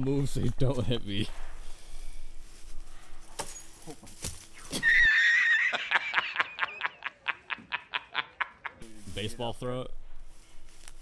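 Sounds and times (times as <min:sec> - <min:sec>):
comic horse whinny effect: 0:04.8 - 0:05.8.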